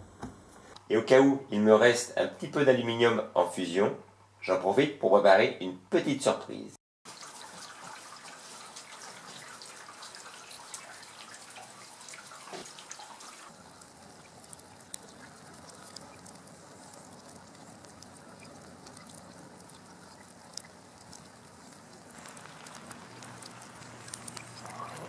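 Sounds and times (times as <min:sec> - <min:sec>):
fire crackling: 0:10.2 - 0:25.0
fire rushing: 0:13.6 - 0:25.0.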